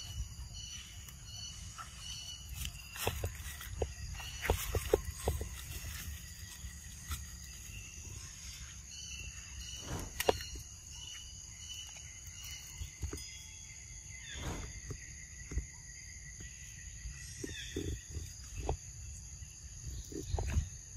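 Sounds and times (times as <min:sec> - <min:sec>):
insects chirring: 0:00.0 - 0:20.9.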